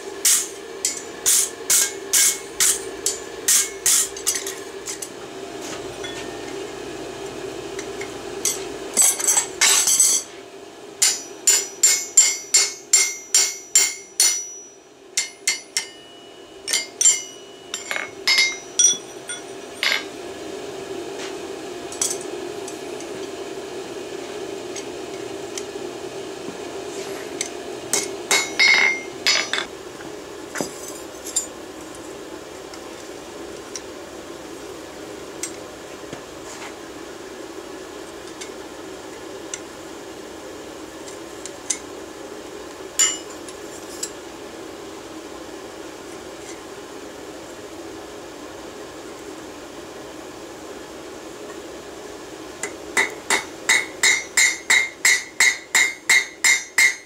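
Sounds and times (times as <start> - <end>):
steady hum: 0.0 - 57.0
hammer striking steel on anvil: 0.2 - 5.0, 7.8 - 10.3, 11.0 - 20.1, 27.4 - 29.7, 43.0 - 43.4, 52.6 - 57.0.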